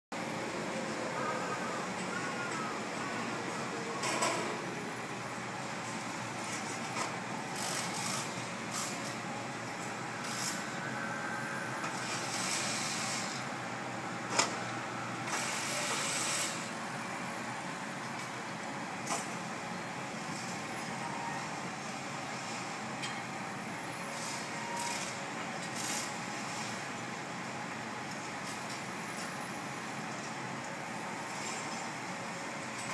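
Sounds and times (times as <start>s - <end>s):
city noise rumble and hiss: 0.1s - 32.9s.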